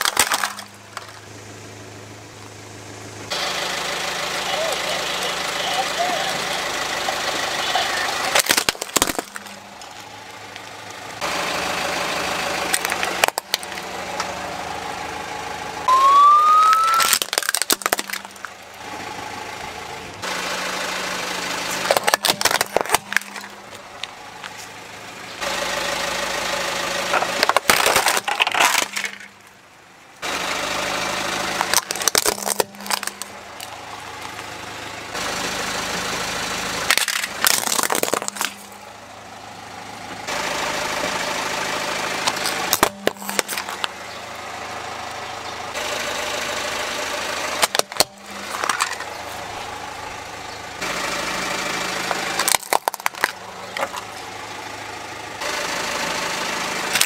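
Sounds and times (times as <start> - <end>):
plastic toys cracking and snapping: 0.0 - 1.2, 8.3 - 9.9, 12.7 - 14.3, 16.6 - 18.6, 21.8 - 24.6, 27.2 - 29.3, 31.6 - 33.7, 36.9 - 38.8, 42.2 - 44.0, 47.6 - 49.1, 52.0 - 54.1
car engine running: 0.0 - 57.0
short rising squeal: 15.9 - 17.2.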